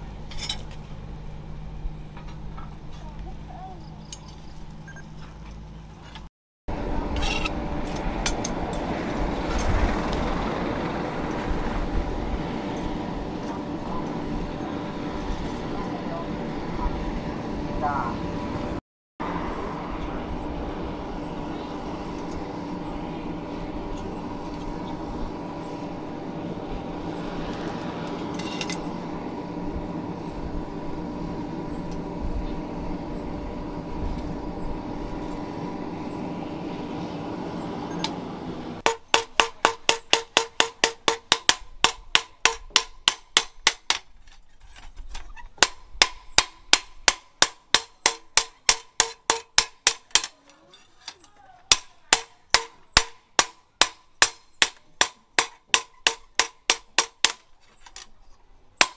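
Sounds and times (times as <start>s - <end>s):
forge blower humming: 0.0s - 44.2s, 44.8s - 58.9s
hammer blows on hot steel: 38.8s - 44.1s, 45.6s - 50.4s, 51.7s - 58.0s.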